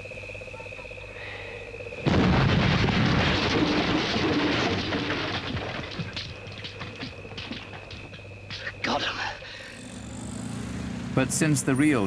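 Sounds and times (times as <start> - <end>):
insects and frogs chirring: 0.0 - 12.0
loud rumbling explosion: 2.0 - 6.2.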